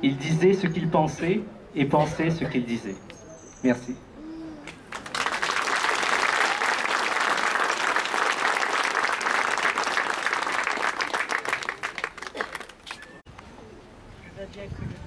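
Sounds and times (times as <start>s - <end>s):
crowd applauding: 4.7s - 13.2s.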